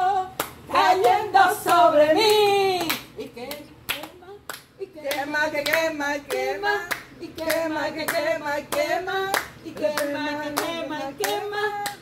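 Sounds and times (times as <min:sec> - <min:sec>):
women singing gospel chorus: 0:00.0 - 0:12.0
hand clapping: 0:00.4 - 0:12.0.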